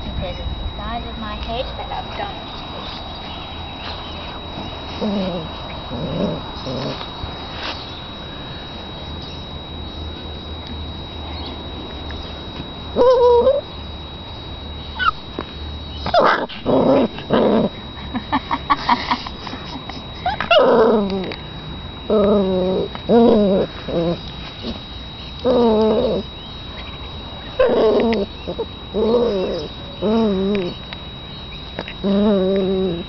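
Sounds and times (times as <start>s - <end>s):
puppy yipping and whimpering: 15.0s - 15.2s.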